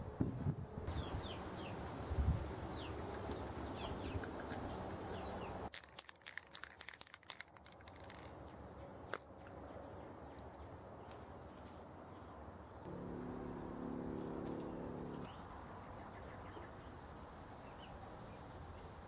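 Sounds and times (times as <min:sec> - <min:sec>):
masking tape pulled and torn: 0:05.7 - 0:09.2.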